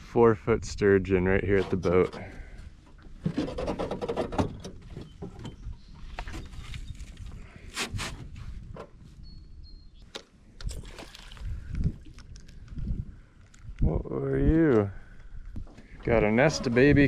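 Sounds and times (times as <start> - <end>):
wind rumble on microphone: 4.3 - 10.0, 10.6 - 17.0.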